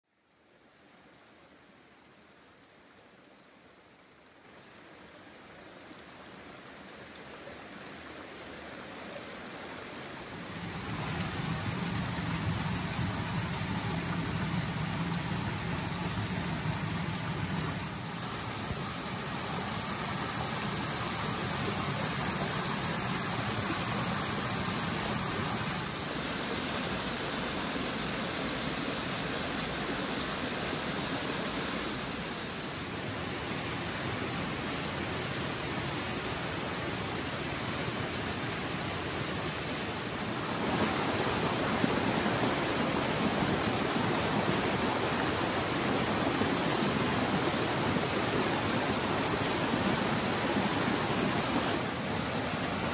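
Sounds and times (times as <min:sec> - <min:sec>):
water splashing over rocks: 0:08.0 - 0:32.9, 0:38.8 - 0:52.9.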